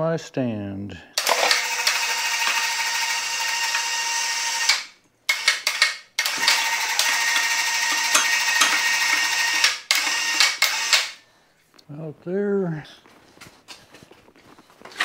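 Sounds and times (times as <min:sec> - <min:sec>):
electric hoist motor whining: 0:01.2 - 0:11.2.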